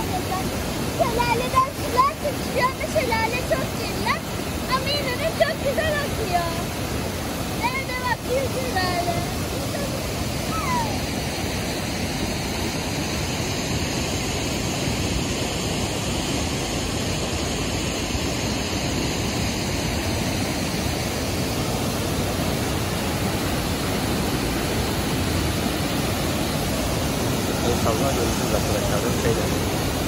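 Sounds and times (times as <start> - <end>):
water churning and splashing: 0.0 - 18.6, 19.2 - 30.0
small waterfall rushing: 0.0 - 30.0.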